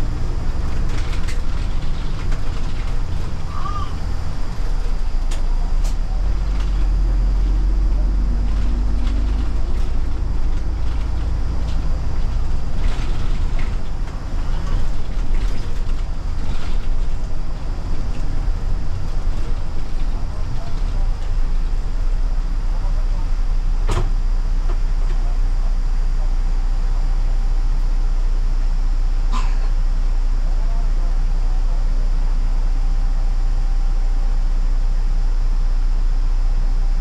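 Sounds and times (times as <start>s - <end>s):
tyres on road: 0.0s - 26.4s
bus engine rumble: 0.0s - 37.0s.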